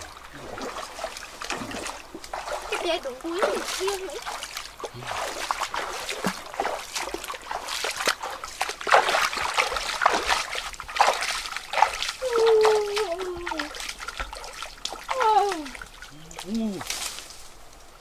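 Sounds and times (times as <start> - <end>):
bare feet splashing in stream: 0.0 - 18.0.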